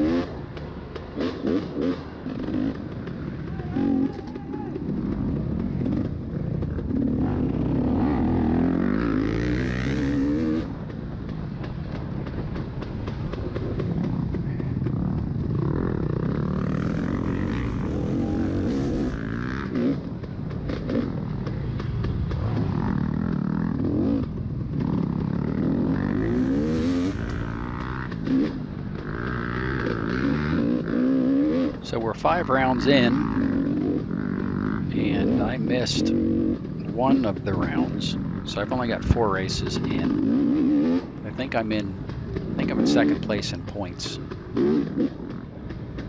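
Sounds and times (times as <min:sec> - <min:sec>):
motorcycle engine revving: 0:00.0 - 0:46.0.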